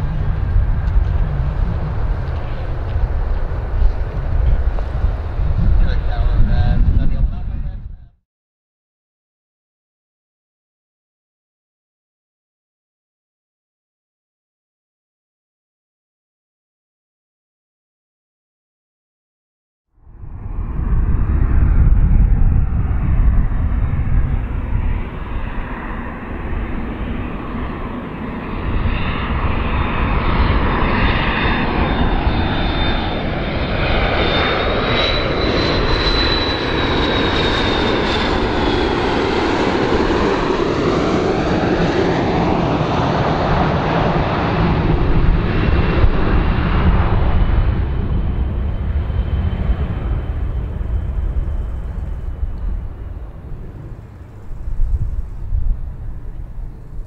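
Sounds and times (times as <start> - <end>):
high jet whine: 0.0 - 8.1, 20.0 - 57.0
jet engines rumbling: 0.0 - 8.2, 20.0 - 57.0.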